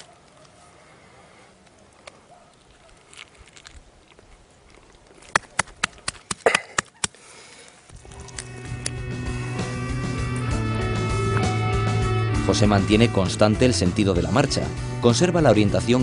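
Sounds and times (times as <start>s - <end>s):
wet crunching while chewing: 2.0s - 8.9s
music: 7.9s - 16.0s.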